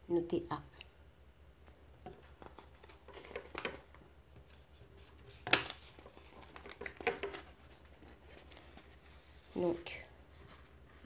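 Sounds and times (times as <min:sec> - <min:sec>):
paper and pen handling: 0:02.1 - 0:11.0.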